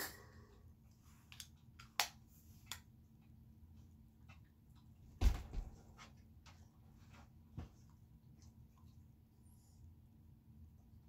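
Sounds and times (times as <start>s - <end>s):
deep thump: 5.2s - 5.8s.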